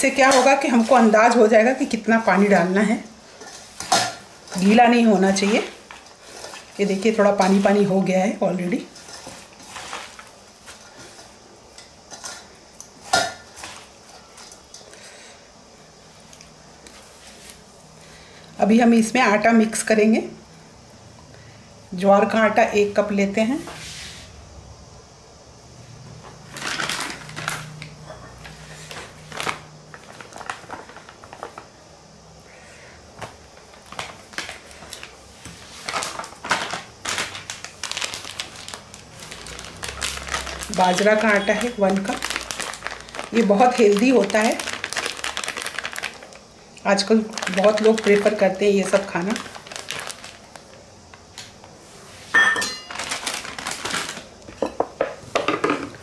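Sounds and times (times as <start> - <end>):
rustling and scraping: 3.3 - 8.1, 8.8 - 14.6
plastic packet crinkling: 26.5 - 27.9, 28.9 - 31.7, 33.5 - 51.7, 52.8 - 54.5
measuring cup clinking against bowl: 52.4 - 52.9.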